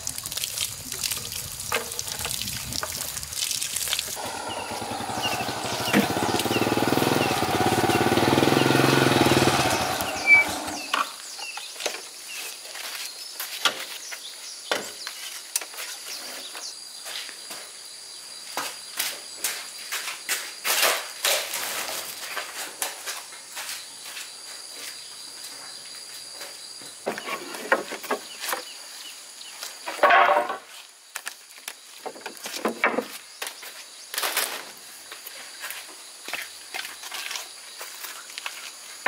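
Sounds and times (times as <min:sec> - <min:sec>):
engine running: 0:04.2 - 0:11.1.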